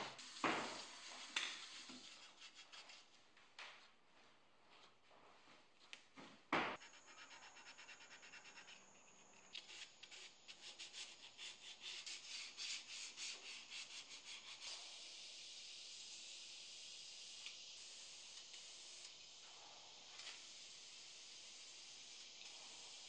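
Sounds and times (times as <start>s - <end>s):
aerosol spray can hissing: 0.0s - 3.0s, 9.6s - 23.0s
sandpaper rubbing on wood: 0.0s - 3.1s, 6.8s - 8.8s, 9.6s - 15.0s.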